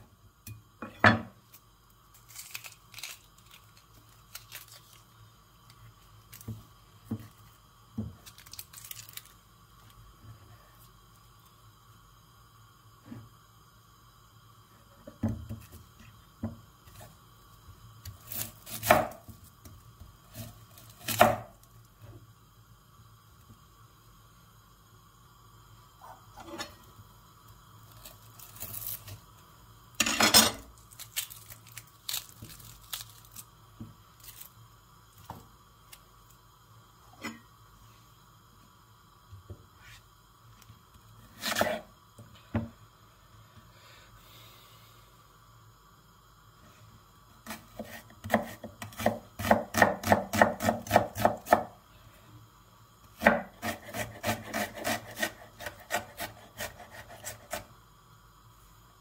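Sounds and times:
onions being peeled and handled: 1.3 - 11.6, 14.9 - 22.1, 26.0 - 36.4, 47.4 - 52.2, 53.0 - 57.8
knife chopping on wooden board: 18.7 - 19.2, 21.0 - 21.5, 47.5 - 51.7, 53.2 - 57.6.

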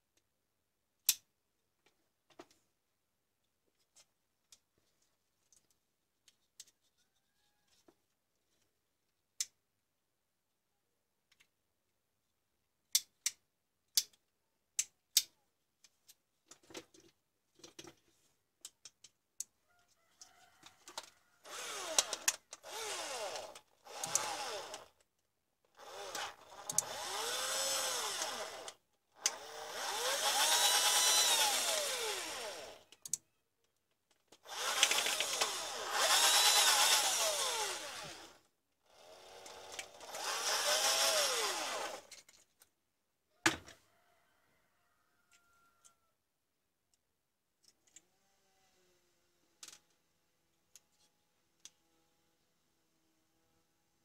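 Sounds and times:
plastic parts clicking: 20.8 - 25.1, 32.6 - 38.1, 41.8 - 42.7, 49.6 - 50.0
cordless drill motor: 21.0 - 25.0, 25.7 - 33.0, 34.4 - 42.2.

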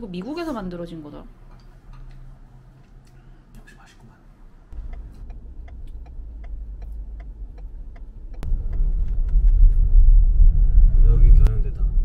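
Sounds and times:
car engine and road rumble: 4.4 - 12.0
turn signal ticking: 4.7 - 9.5.

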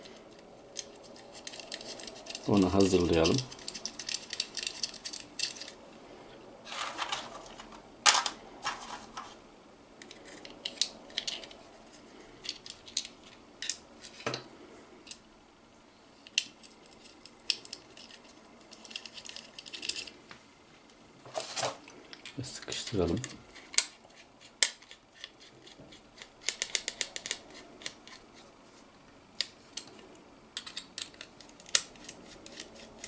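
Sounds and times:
plastic and metal parts clattering: 0.0 - 5.8, 6.7 - 9.4.

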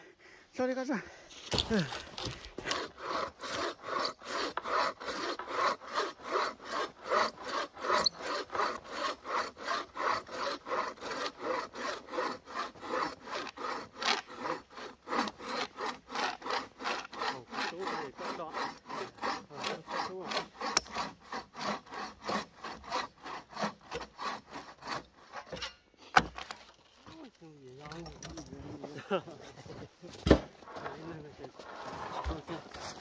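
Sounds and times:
hand saw cutting wood: 1.3 - 33.0.

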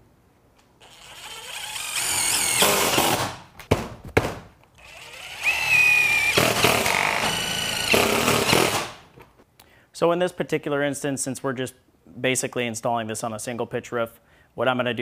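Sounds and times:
impact driver driving screws: 0.8 - 3.3, 4.8 - 9.0.

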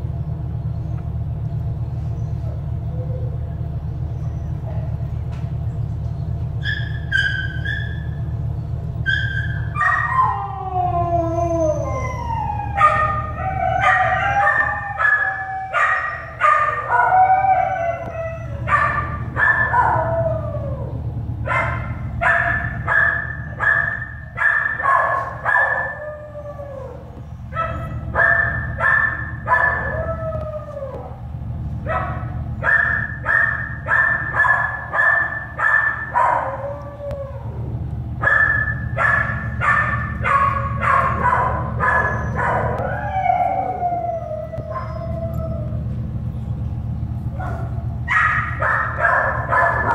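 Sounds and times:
steady low hum: 0.0 - 49.9
puppies crying in high squeals: 6.6 - 8.3, 9.0 - 31.2, 38.2 - 45.9.

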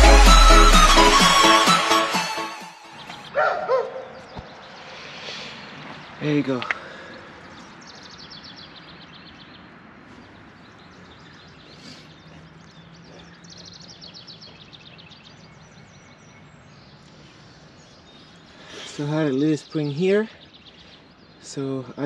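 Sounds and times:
outdoor ambience hiss: 4.7 - 7.1.

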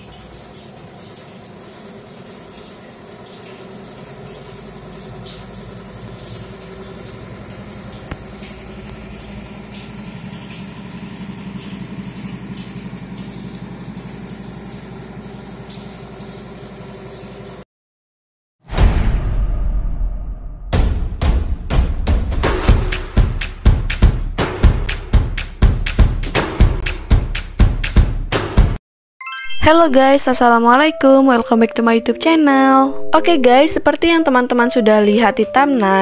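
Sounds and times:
low machine drone: 5.4 - 15.7.

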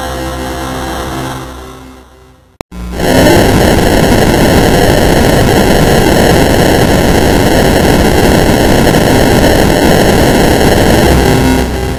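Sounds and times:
harsh distorted static noise: 2.3 - 11.9.

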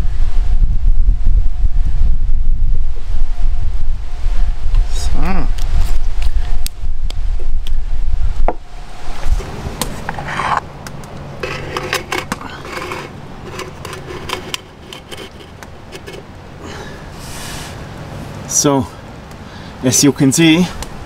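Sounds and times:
low wind rumble on microphone: 0.0 - 19.6
metal scraping and clicking: 10.0 - 16.3.

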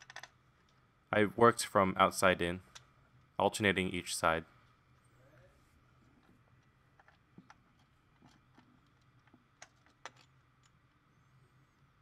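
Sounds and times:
faint irregular clicks: 6.1 - 11.0.

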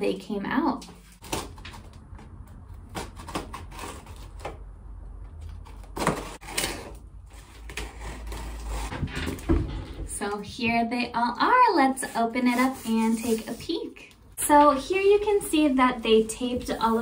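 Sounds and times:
cardboard package being opened: 5.4 - 8.9.

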